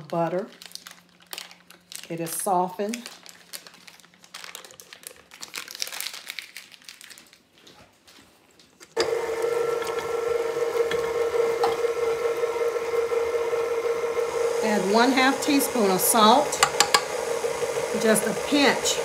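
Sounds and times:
paper wrapper crinkling: 0.0 - 9.8
beater mashing potatoes: 9.0 - 19.0
stand mixer motor hum: 9.0 - 19.0.

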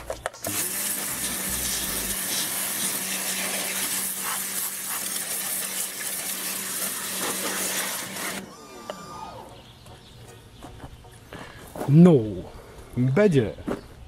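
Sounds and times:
pressure washer jet hissing: 0.4 - 9.5.

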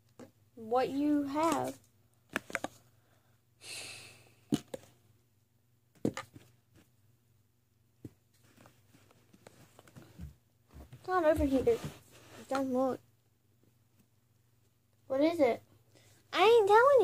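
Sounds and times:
breathy hiss: 3.6 - 4.5.

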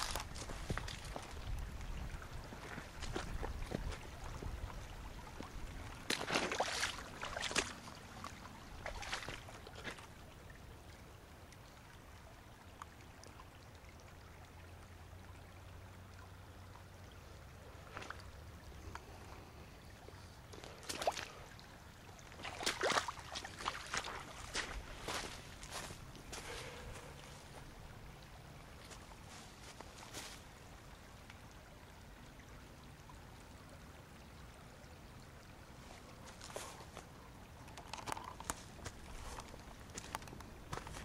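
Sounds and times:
creek running: 0.0 - 41.0
footsteps in dry leaves: 24.0 - 27.1.

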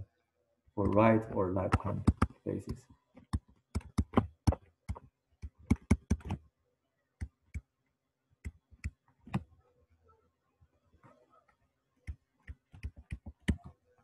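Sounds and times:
stylus tapping on tablet: 0.8 - 6.4, 8.4 - 9.4, 12.0 - 13.7.

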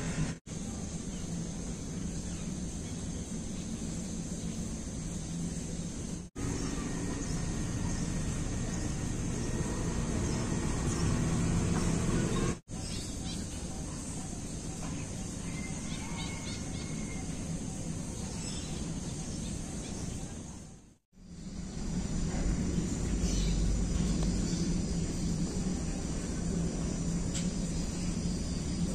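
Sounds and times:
outdoor background noise: 0.0 - 28.9
faint bird chirps: 6.4 - 21.4.

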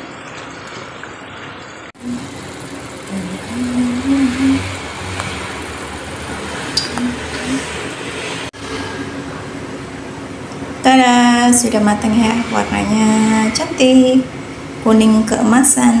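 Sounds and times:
hot oil sizzling: 2.0 - 8.5.

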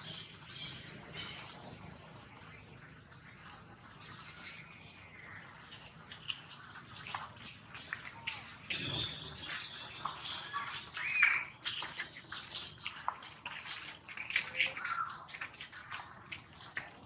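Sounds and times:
rustling in dry leaves: 4.2 - 15.8
monkeys squeaking: 8.0 - 16.7.

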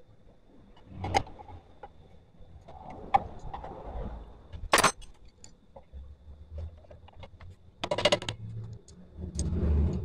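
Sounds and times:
metal parts knocking and clinking: 4.7 - 5.5, 6.8 - 8.4.

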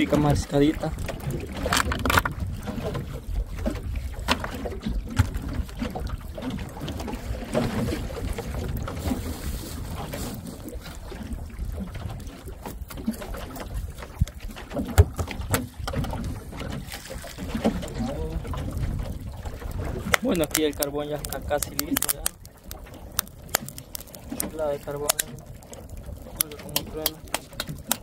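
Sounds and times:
wind rumbling on microphone: 0.0 - 28.0
knocks on boat deck: 14.7 - 16.8.

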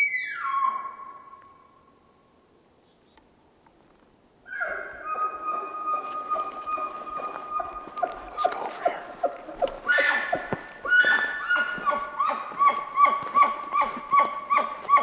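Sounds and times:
elk bugling: 4.5 - 15.0
footsteps on forest ground: 5.1 - 15.0.

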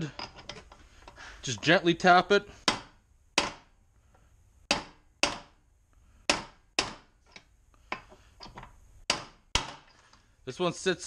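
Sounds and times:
hammer tapping metal: 2.6 - 3.7, 4.7 - 5.6, 6.3 - 8.2.

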